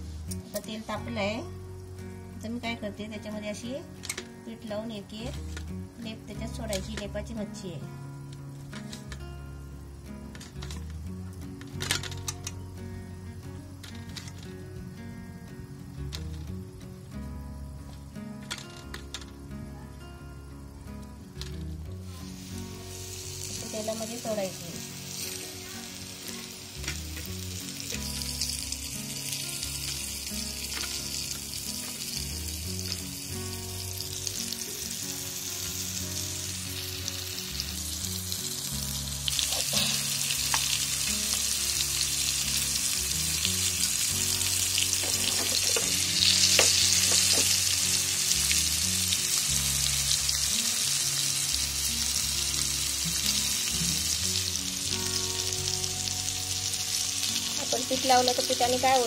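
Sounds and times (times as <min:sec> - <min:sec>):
fish frying in hot oil: 0:21.7 - 0:59.0.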